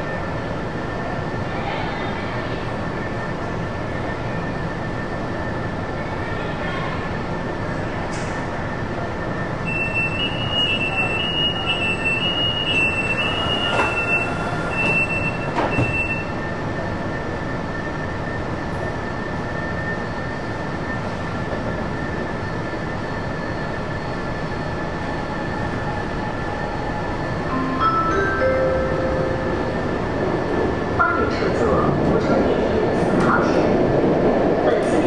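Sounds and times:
train hum and running noise: 0:00.0 - 0:35.0
train doors knocking shut: 0:14.8 - 0:16.1.

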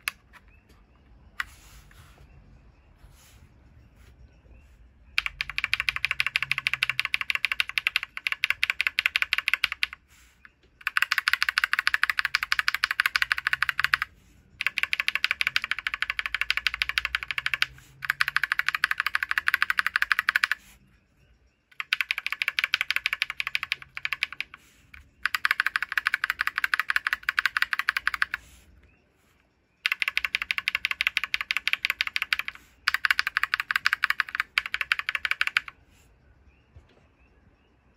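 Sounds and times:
mechanical keyboard keystroke clicks: 0:05.2 - 0:10.0, 0:10.8 - 0:20.6, 0:25.2 - 0:28.4, 0:29.8 - 0:35.7.

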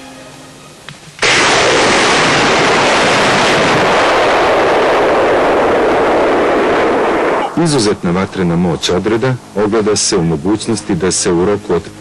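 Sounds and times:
launch blast: 0:01.2 - 0:10.1.

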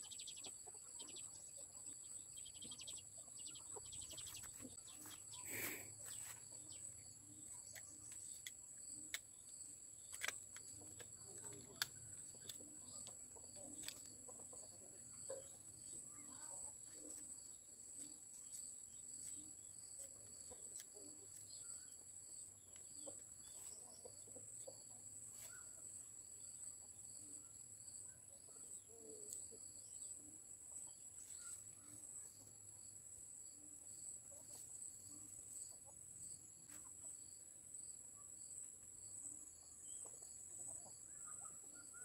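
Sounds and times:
chickens clucking: 0:00.0 - 0:06.9, 0:10.6 - 0:18.0.

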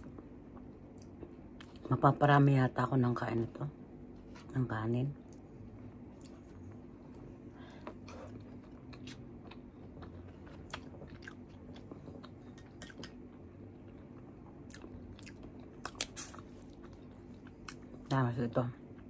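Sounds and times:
chewing and mouth sounds: 0:00.0 - 0:02.0, 0:05.2 - 0:18.2.

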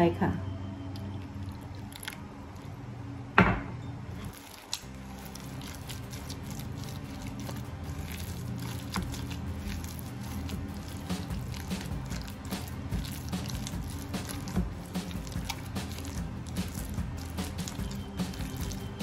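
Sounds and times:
spatula stirring wet batter: 0:04.2 - 0:19.0.

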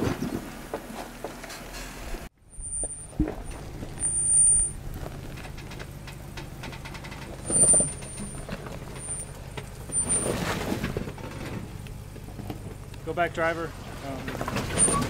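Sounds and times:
truck engine crawling: 0:00.0 - 0:15.0
high-pitched squeals: 0:02.4 - 0:10.9
tyres grinding on rock: 0:02.6 - 0:12.7.

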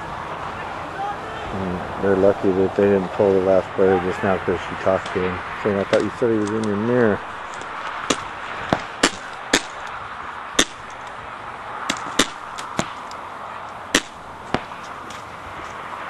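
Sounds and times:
steady background hiss: 0:00.0 - 0:16.0
paintball marker shots: 0:07.5 - 0:10.0, 0:10.6 - 0:11.0, 0:11.9 - 0:13.1, 0:13.9 - 0:15.2.

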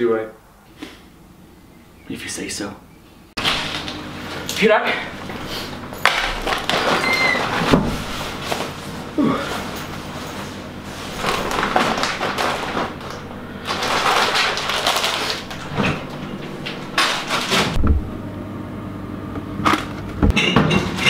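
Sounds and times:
steady low hum: 0:00.3 - 0:21.0
fridge door opening: 0:03.4 - 0:18.2
rustling: 0:06.3 - 0:17.8.

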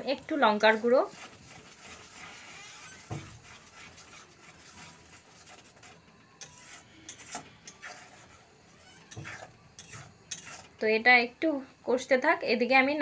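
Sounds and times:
spoon scraping metal pan: 0:00.2 - 0:10.8
spoon knocking on pan: 0:03.0 - 0:03.5.

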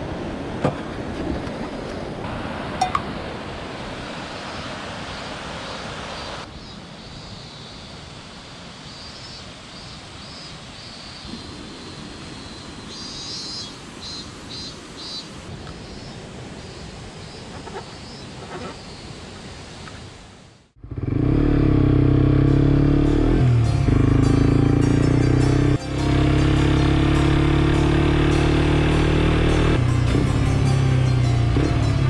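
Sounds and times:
motorcycle engine and road noise: 0:20.7 - 0:32.0.

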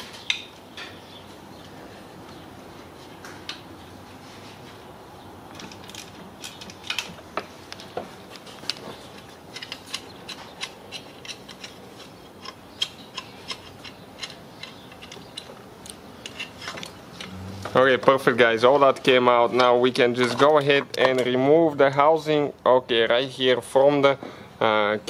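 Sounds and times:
hand ratchet clicking: 0:09.5 - 0:17.4.

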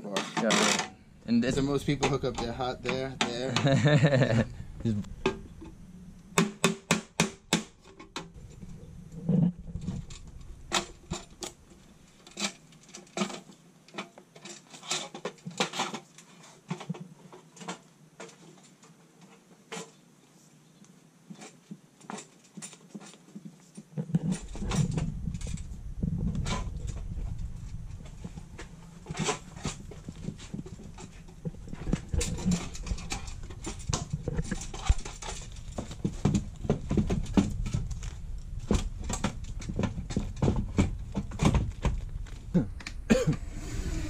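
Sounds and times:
low handling rumble: 0:01.0 - 0:06.4, 0:08.2 - 0:12.2, 0:24.3 - 0:44.0.

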